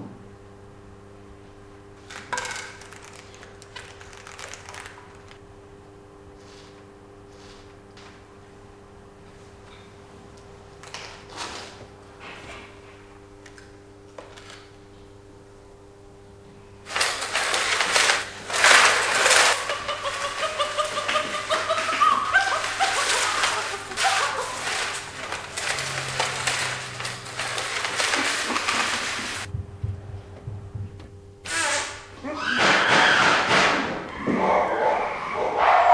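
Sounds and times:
laptop scraping on tiled floor: 16.9 - 21.6, 22.5 - 29.5
chimpanzee calls: 19.2 - 25.0, 31.6 - 33.2
low hum: 29.5 - 31.4.

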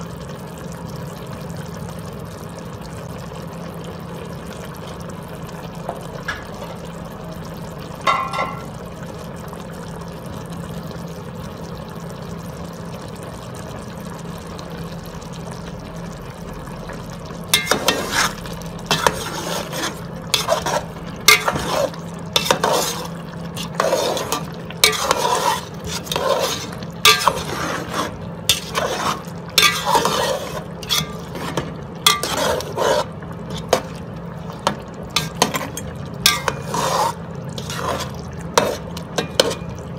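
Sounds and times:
ladle scraping and knocking pot: 8.0 - 8.8, 17.6 - 34.0, 34.6 - 39.8.

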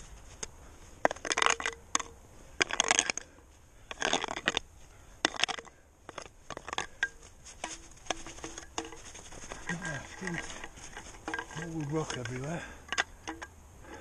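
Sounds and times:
snow scraping and crunching on rock: 7.2 - 12.7.

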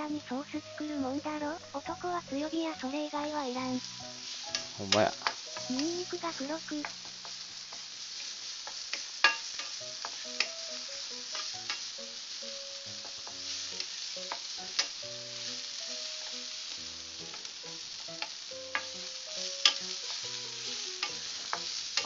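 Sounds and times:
garlic and onion sizzling in oil: 0.0 - 22.0
spatula clicking on pan: 4.5 - 6.1, 6.8 - 11.9, 13.0 - 15.5, 17.2 - 22.0
wooden spatula stirring: 12.5 - 22.0.

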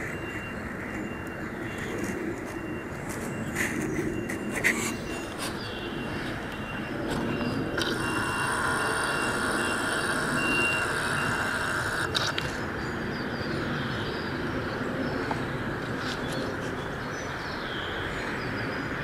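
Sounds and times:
high whine: 0.0 - 13.1
steady mechanical noise: 0.0 - 19.0.

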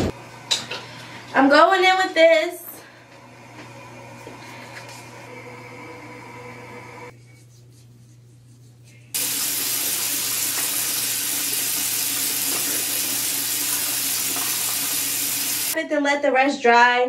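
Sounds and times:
faucet turned on: 9.2 - 15.8
water running into basin: 9.2 - 15.8.

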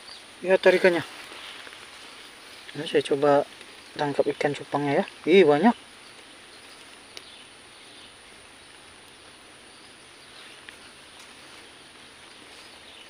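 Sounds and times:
outdoor ambient hiss: 0.0 - 13.0
soft ticks: 6.1 - 7.4, 10.6 - 11.3.

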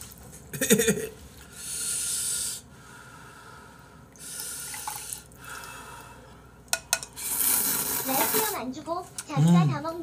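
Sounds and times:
broth pouring into bowl: 4.2 - 5.8.

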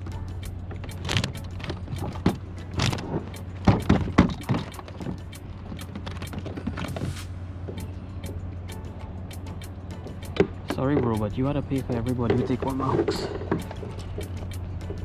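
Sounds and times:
steady low hum: 0.0 - 15.0
knocks and clicks against kayak: 0.7 - 7.0, 10.1 - 15.0.

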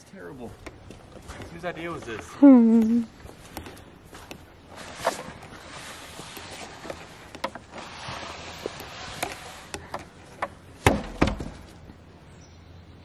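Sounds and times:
wooden frame rustling through straw: 4.7 - 9.8
wooden frame thudding on ground: 10.8 - 11.8.

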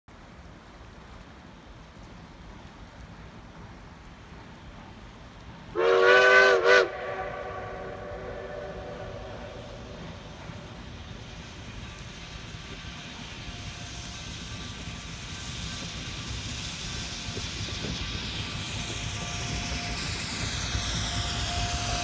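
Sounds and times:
steam locomotive chime whistle: 5.7 - 9.9, 19.0 - 22.0.

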